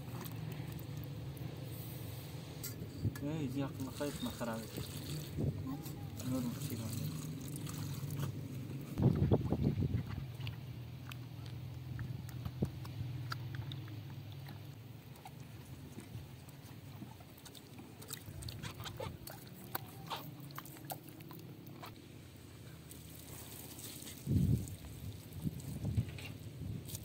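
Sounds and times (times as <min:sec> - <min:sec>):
water poured onto ground: 0:03.6 - 0:05.5, 0:06.2 - 0:08.3, 0:22.9 - 0:27.0.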